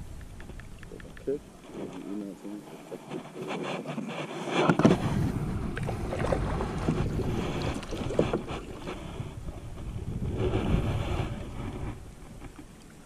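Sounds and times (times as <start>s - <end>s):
camera knocking and rubbing: 2.9s - 12.7s
wind buffeting microphone: 3.4s - 13.0s.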